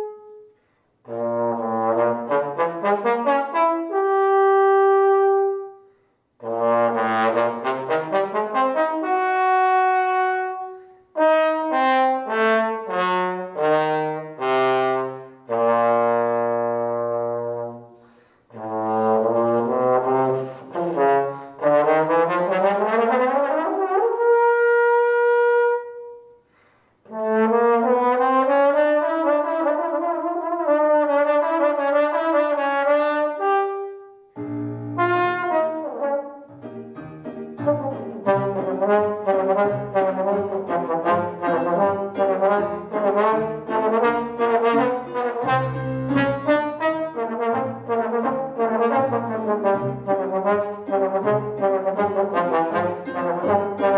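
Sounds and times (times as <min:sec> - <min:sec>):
solo trombone playing: 0:00.0 - 0:53.9
player breathing: 0:18.0 - 0:18.5, 0:26.4 - 0:27.0.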